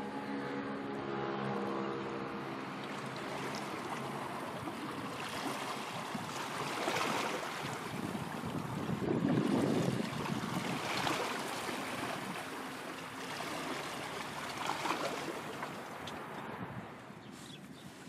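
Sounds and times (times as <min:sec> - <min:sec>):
boat engine droning: 0:00.0 - 0:17.2
waves washing: 0:02.2 - 0:18.0
wind on microphone: 0:04.2 - 0:12.4, 0:16.0 - 0:18.0.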